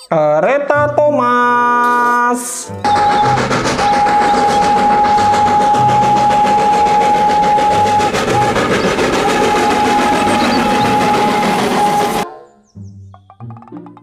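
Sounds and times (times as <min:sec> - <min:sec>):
train rumbling: 0:02.7 - 0:12.2
steam whistle blowing: 0:02.8 - 0:12.2.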